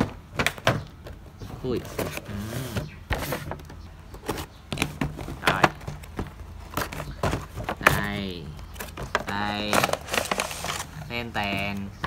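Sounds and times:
cardboard box and packaging rustling: 0:00.0 - 0:12.0.

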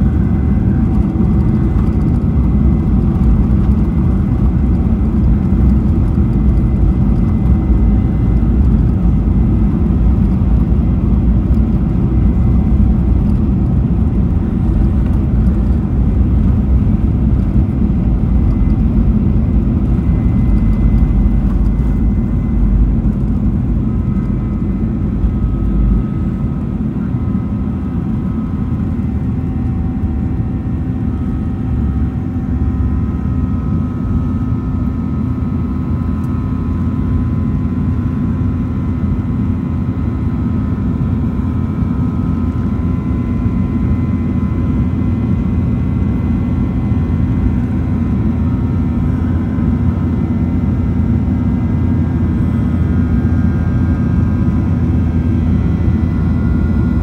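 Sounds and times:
faint steady whine tones: 0:00.0 - 0:57.0
jet engine cabin rumble: 0:00.0 - 0:57.0.

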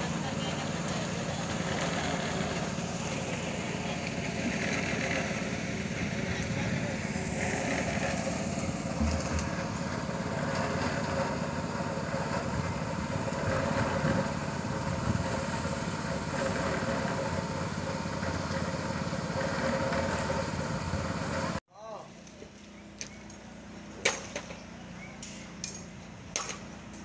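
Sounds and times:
concrete mixer engine running: 0:00.0 - 0:21.6.

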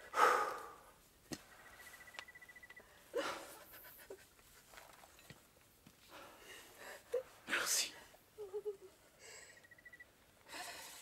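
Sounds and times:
person gasping breaths: 0:00.0 - 0:00.8.

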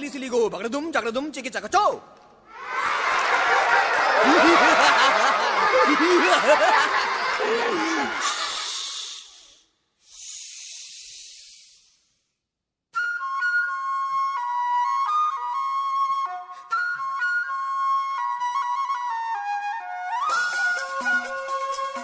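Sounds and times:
many voices laughing and chattering: 0:03.6 - 0:08.7
flute music: 0:12.9 - 0:22.0.

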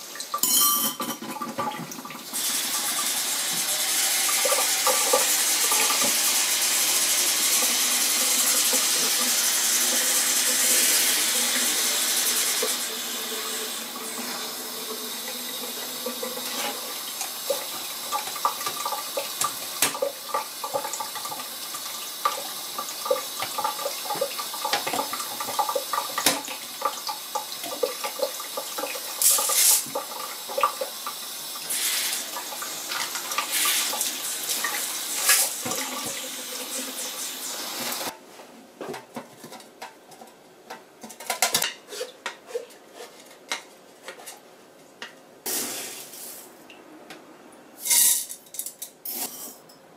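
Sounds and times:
tap water running into a sink: 0:00.0 - 0:38.1.

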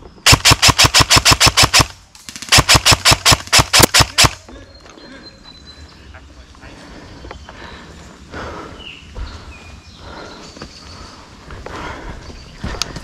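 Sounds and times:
airsoft rifle firing: 0:00.2 - 0:04.4.

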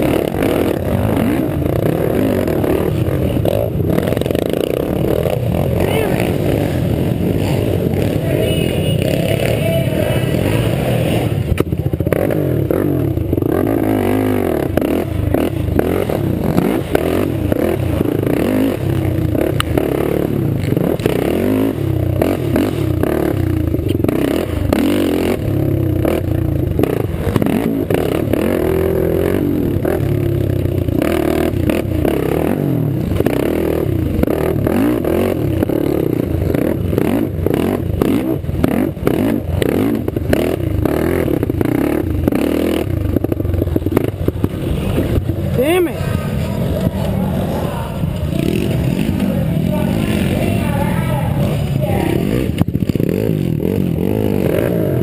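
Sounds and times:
quad engine revving: 0:00.0 - 0:55.0.

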